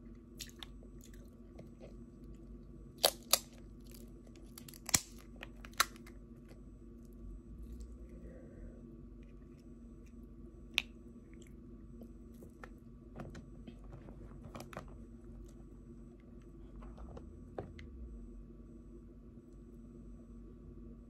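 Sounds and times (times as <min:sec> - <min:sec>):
crunching and squishing: 0:00.4 - 0:08.4
crab shells cracking: 0:03.0 - 0:06.2.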